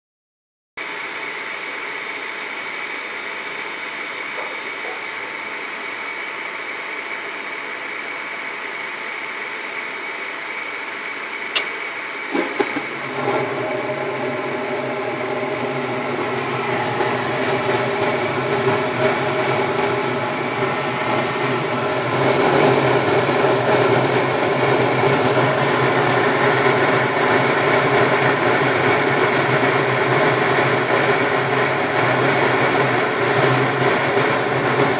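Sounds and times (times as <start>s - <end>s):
gas furnace humming: 0.9s - 34.9s
sharp click: 11.5s - 11.8s.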